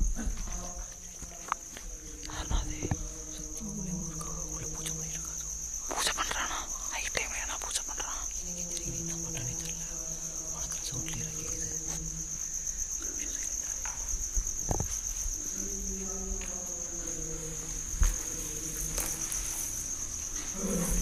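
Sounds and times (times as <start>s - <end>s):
insects chirring: 0.0s - 21.0s.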